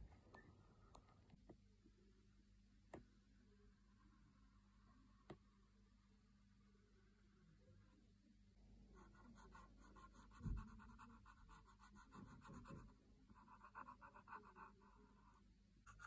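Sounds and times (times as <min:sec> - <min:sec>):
soft low thump: 0:10.4 - 0:10.8.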